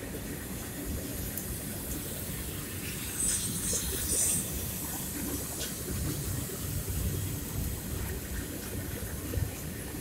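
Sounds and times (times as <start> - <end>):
wheels clattering on rails: 0.0 - 10.0.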